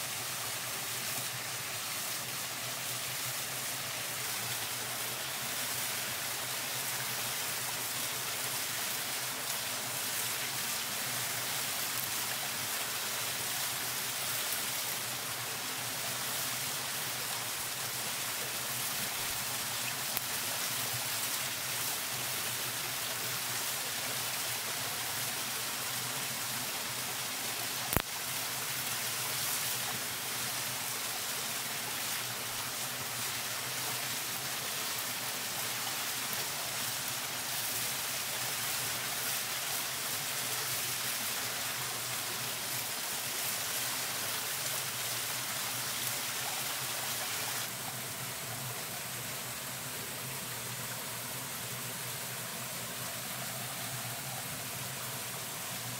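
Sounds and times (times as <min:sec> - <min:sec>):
small waterfall rushing: 0:00.0 - 0:55.9
twig fire crackling: 0:27.9 - 0:28.2.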